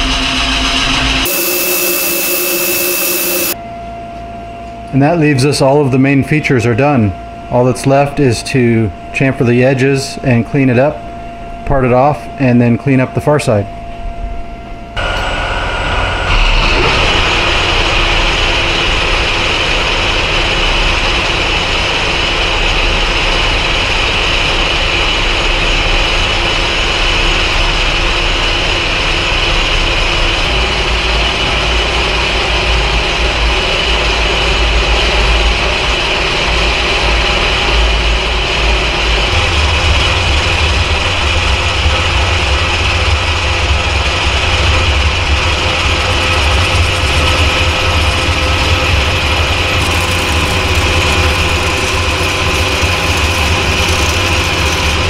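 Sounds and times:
motor hum: 0.0s - 3.6s, 15.0s - 55.0s
metal lathe whine: 0.1s - 4.8s, 14.6s - 55.0s.

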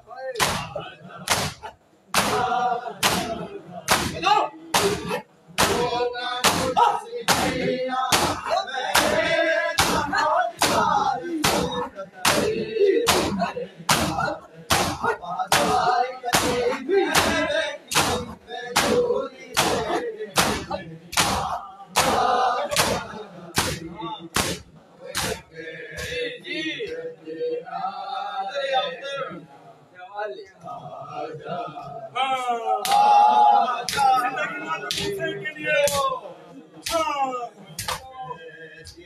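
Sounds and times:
men chanting a lament: 0.0s - 39.0s
voices: 0.0s - 39.0s
men slapping chests in unison: 0.4s - 26.3s, 32.8s - 33.2s, 33.8s - 35.2s, 35.8s - 36.1s, 36.8s - 37.2s, 37.8s - 38.1s.

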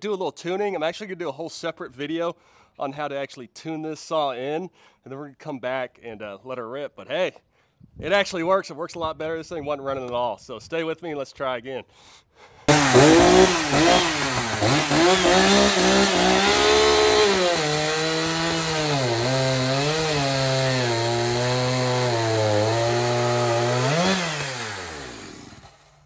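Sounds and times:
chainsaw cutting log: 12.7s - 26.0s.

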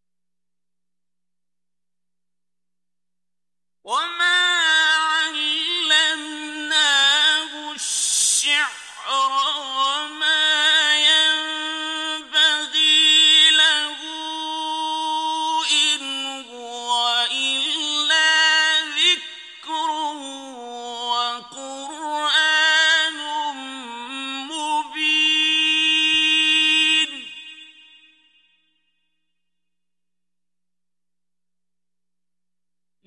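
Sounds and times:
man chanting melodically: 3.9s - 28.0s.

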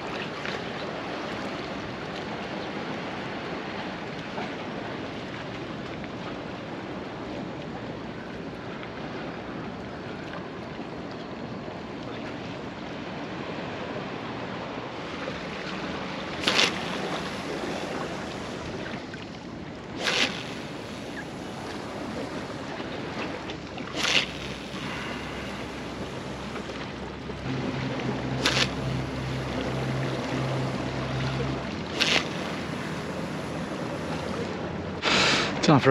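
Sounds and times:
sea waves washing on rocks: 13.0s - 35.9s.

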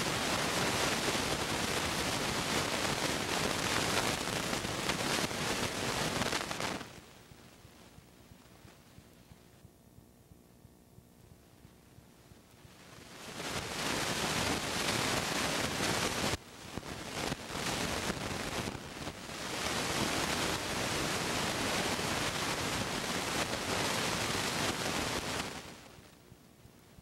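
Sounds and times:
loud rushing hiss: 0.0s - 7.0s.

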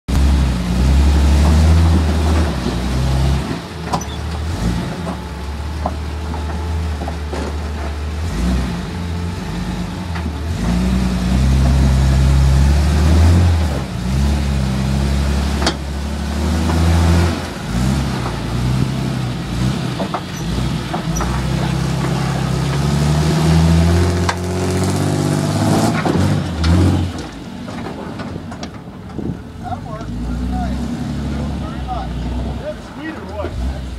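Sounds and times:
engine revving hard: 8.2s - 27.2s.

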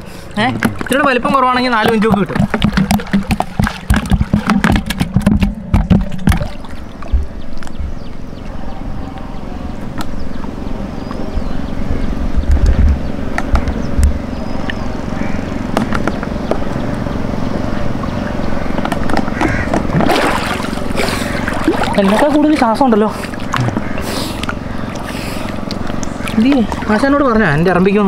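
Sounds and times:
water sloshing and gurgling: 0.0s - 8.6s, 12.6s - 28.0s
sharp water splashes: 0.3s - 7.1s, 19.3s - 27.3s
low rumbling: 1.4s - 28.0s.

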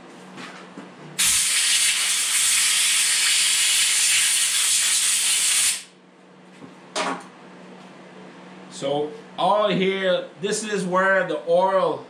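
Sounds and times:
compressed air hissing: 1.2s - 5.9s.

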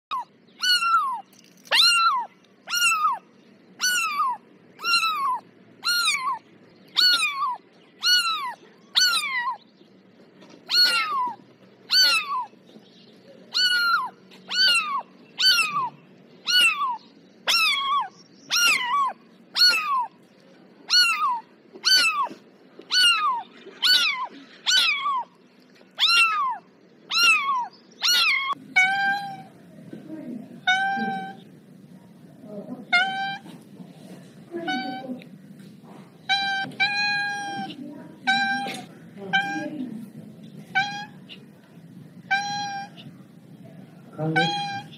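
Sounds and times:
kitten mewing: 0.1s - 3.2s, 3.8s - 9.6s, 10.7s - 12.5s, 13.5s - 20.2s, 20.9s - 25.4s, 26.0s - 29.6s, 30.6s - 31.5s, 32.9s - 33.6s, 34.6s - 35.3s, 36.3s - 39.9s, 40.7s - 41.5s, 42.2s - 43.1s, 44.3s - 44.9s.

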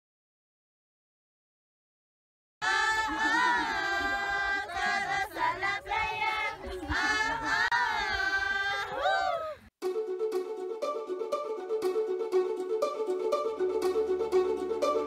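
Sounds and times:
women singing in unison: 2.6s - 9.5s.

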